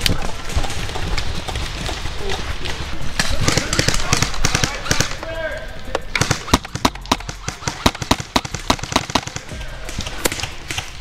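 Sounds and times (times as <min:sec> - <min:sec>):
airsoft rifle shots: 0:03.2 - 0:05.4, 0:06.1 - 0:11.0.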